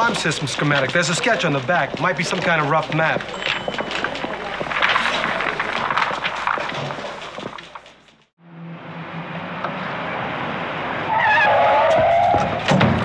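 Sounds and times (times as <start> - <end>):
tyres squealing: 0.0 - 8.2
footsteps clicking in a hallway: 0.0 - 8.3
road noise: 0.0 - 13.0.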